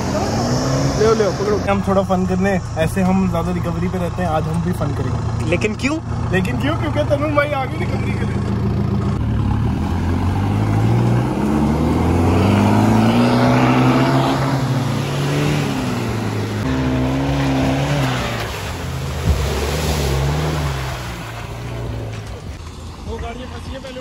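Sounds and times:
off-road engine revving: 0.0 - 24.0.

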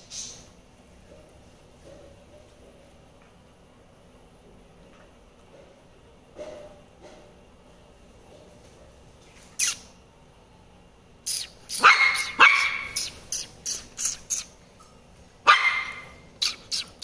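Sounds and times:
puppy barking: 11.7 - 14.5, 15.4 - 17.0.

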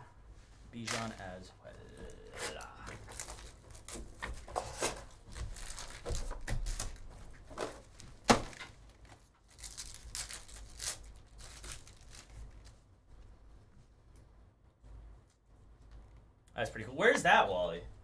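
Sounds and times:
cards rustling: 0.8 - 12.8
foil wrappers crinkling and tearing: 2.0 - 7.2, 8.0 - 12.8.

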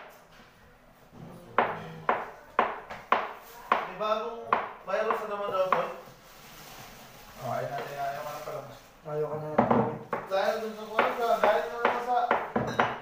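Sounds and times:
people talking: 7.4 - 12.4.

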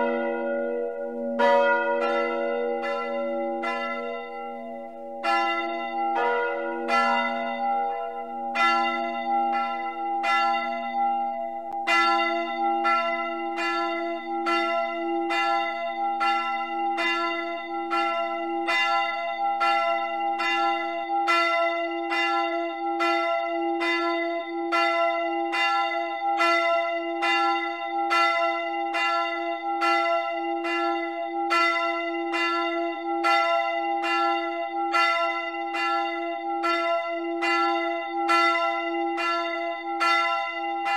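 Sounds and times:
church bells ringing: 0.0 - 40.9.

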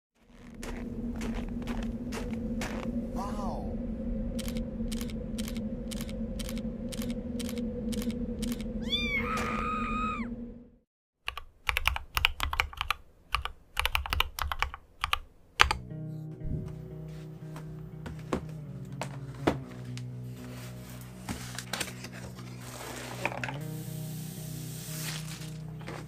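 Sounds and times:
steady hum: 0.2 - 10.8
cat meowing: 8.8 - 10.3
mechanical keyboard keys clacking: 11.3 - 15.8.

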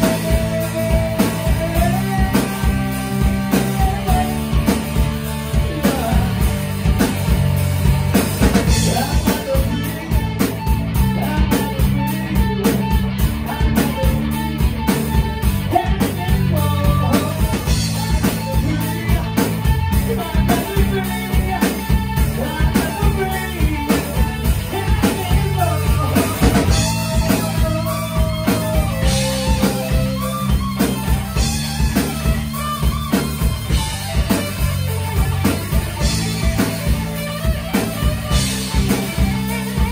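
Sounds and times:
man singing into a microphone: 0.0 - 4.7, 5.5 - 6.5, 8.7 - 14.6, 15.7 - 30.0
bass guitar: 0.0 - 39.9
drum kit beat: 0.0 - 39.9
electric guitar: 0.0 - 39.9.

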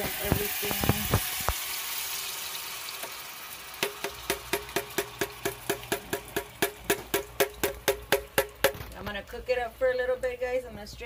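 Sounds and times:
sauce sizzling in a skillet: 0.0 - 8.6
music with wood-block beat: 3.8 - 8.8.

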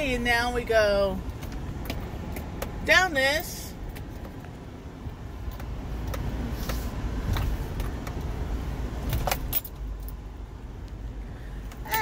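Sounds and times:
engine and road rumble: 0.0 - 12.0
car clicks and rattles: 1.2 - 11.0.

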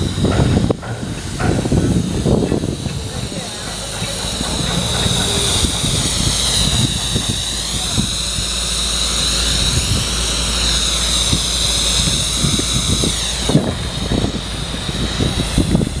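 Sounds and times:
low irregular thumps: 0.0 - 9.0
compressed air hissing with whistle: 0.0 - 16.0.

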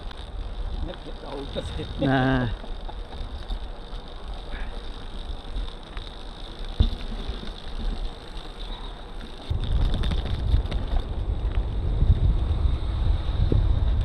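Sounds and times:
light rattles: 0.0 - 11.6
road rumble: 0.0 - 14.0
wind buffeting microphone: 9.5 - 14.0.

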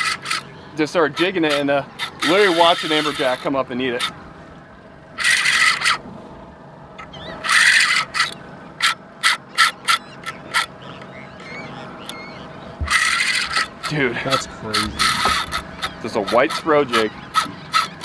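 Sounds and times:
fishing reel drag buzzing: 0.0 - 0.4, 5.2 - 6.0, 7.4 - 8.4, 12.9 - 13.9.

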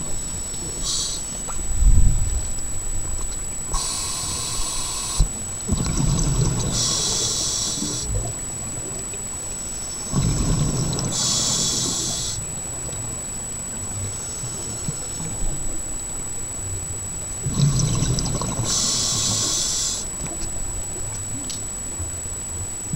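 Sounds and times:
regulator breathing hiss: 0.2 - 1.6, 3.7 - 8.2, 9.4 - 12.6, 14.0 - 15.5, 17.4 - 20.2
rumbling exhaled bubbles: 5.2 - 9.2, 10.0 - 12.4, 17.4 - 21.5.

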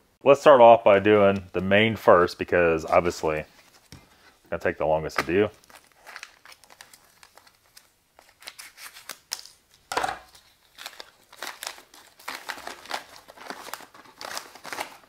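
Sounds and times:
plastic pouch crinkling: 5.3 - 15.0.

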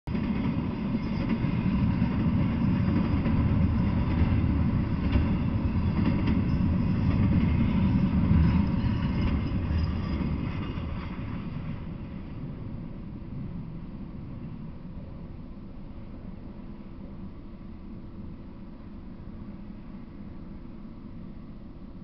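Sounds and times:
freight train rumble: 0.0 - 22.0
train wheel clatter: 0.1 - 12.7.

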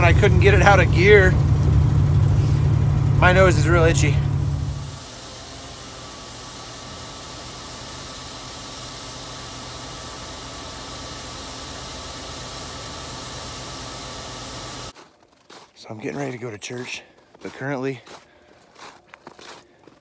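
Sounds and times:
grain auger hissing: 0.0 - 15.0
low engine hum: 0.0 - 15.0.

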